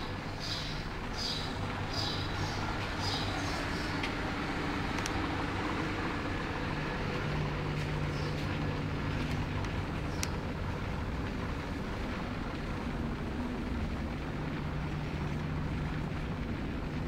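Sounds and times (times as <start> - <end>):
low machinery hum: 0.0 - 17.0
faint clicks: 4.9 - 5.2, 9.2 - 10.4.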